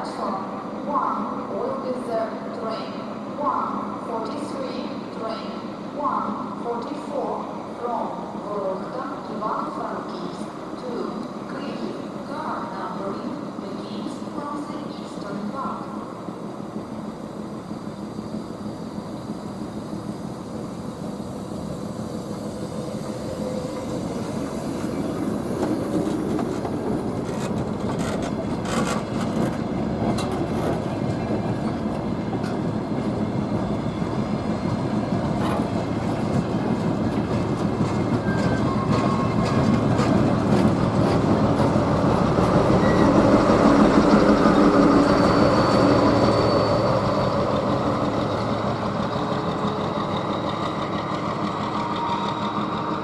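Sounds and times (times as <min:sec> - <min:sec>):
diesel train rumble: 0:00.0 - 0:53.0
train wheels clicking over rail joints: 0:24.8 - 0:33.2, 0:34.7 - 0:42.8.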